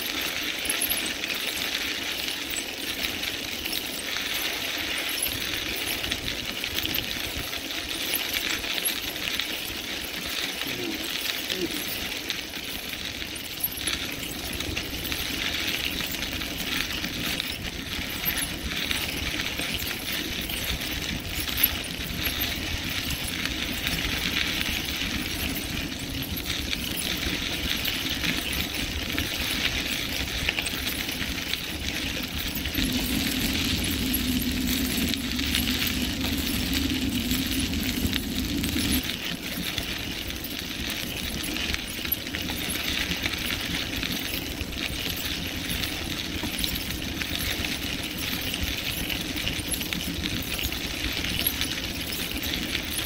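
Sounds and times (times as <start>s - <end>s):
bicycle tyres crunching on gravel: 0.0s - 53.0s
wind rumbling on microphone: 13.8s - 44.0s.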